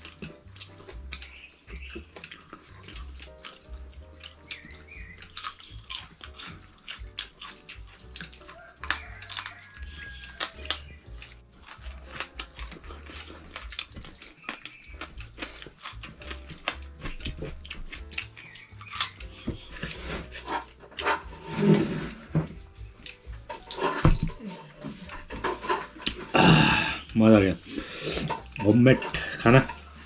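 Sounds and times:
wet chewing and lip-smacking: 0:00.0 - 0:21.4, 0:22.5 - 0:23.8.

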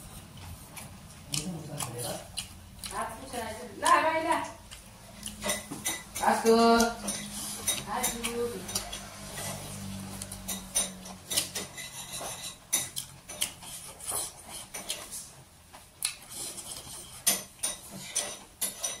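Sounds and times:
plate and utensils clinking: 0:05.4 - 0:13.5, 0:16.4 - 0:19.0.

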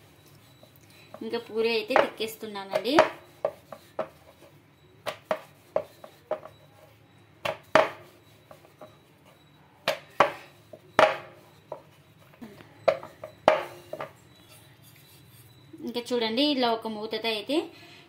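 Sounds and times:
rolling pin knocking on wooden board: 0:01.9 - 0:04.2, 0:05.0 - 0:06.6, 0:07.4 - 0:09.0, 0:11.0 - 0:11.9, 0:12.8 - 0:14.2.

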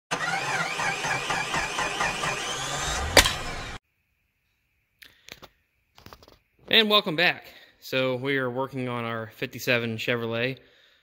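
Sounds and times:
sharp crack: 0:01.2 - 0:03.8.

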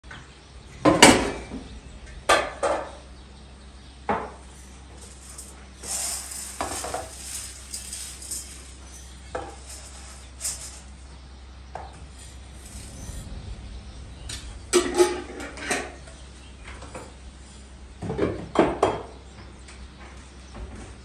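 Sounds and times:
hiss: 0:04.5 - 0:11.0
pots dishes and cutlery clattering: 0:05.0 - 0:11.0.

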